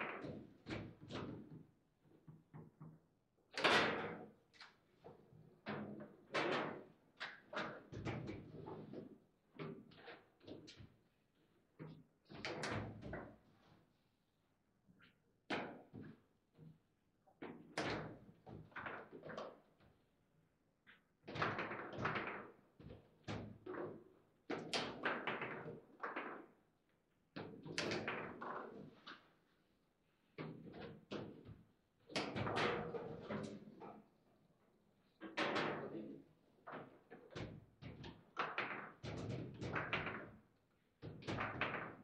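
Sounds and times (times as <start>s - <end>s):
foosball ball knocks and thuds: 41.0s - 42.0s.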